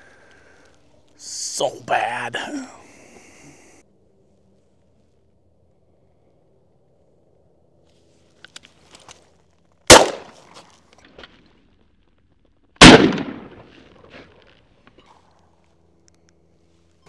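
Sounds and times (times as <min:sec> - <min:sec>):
shotgun shots echoing: 0:09.9 - 0:10.4, 0:12.8 - 0:13.7.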